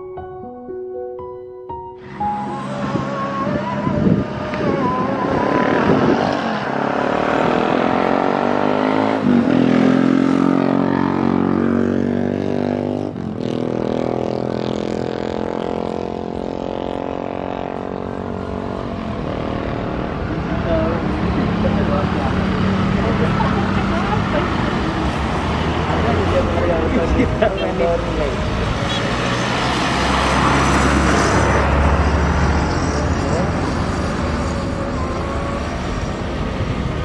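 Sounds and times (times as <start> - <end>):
jet engines buzzing drone: 2.0 - 9.5, 28.7 - 37.0.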